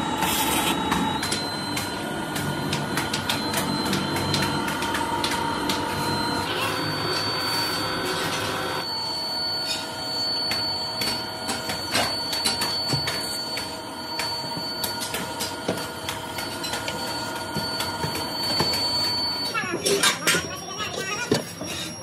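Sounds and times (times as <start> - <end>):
machinery high whine: 0.0 - 22.0.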